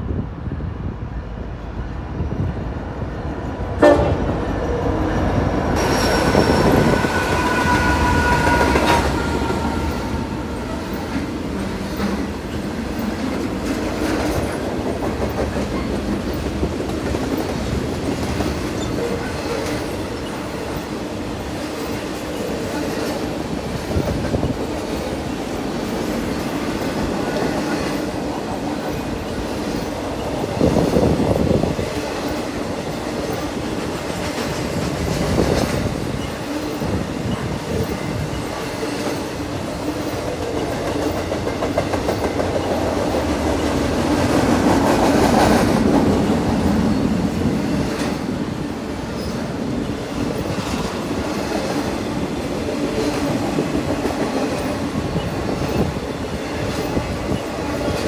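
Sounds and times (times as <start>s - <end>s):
diesel locomotives passing: 0.0s - 58.0s.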